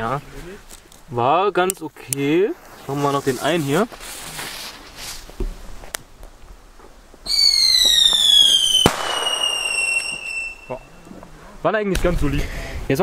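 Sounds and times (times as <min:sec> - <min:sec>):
firework fuse hissing: 0:02.2 - 0:10.9
falling firework whistle: 0:07.2 - 0:10.9
firework bang: 0:07.3 - 0:10.8.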